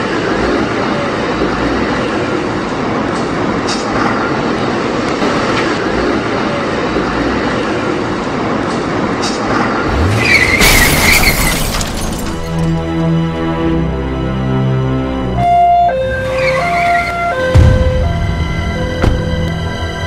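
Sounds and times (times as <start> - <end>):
music: 12.3 - 20.0.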